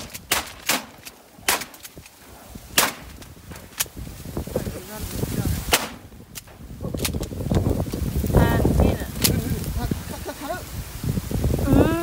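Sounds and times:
shotgun shots: 0.0s - 1.8s, 2.7s - 3.1s, 5.7s - 6.1s.

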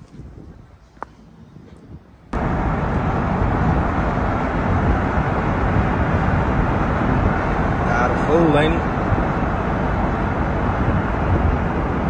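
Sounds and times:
car road and wind noise: 0.0s - 12.0s
faint outdoor sound: 0.0s - 12.0s.

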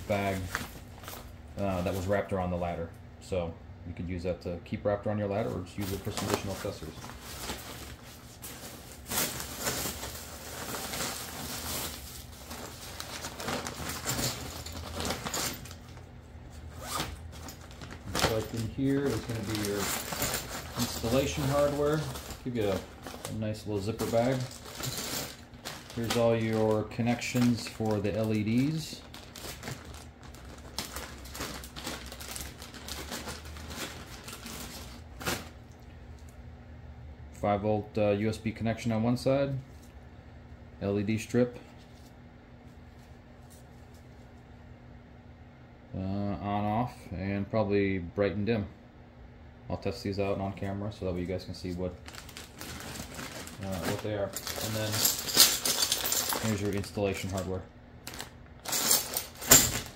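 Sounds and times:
bubble wrap and bags rustling: 0.0s - 2.7s, 5.2s - 35.6s, 50.6s - 59.9s.

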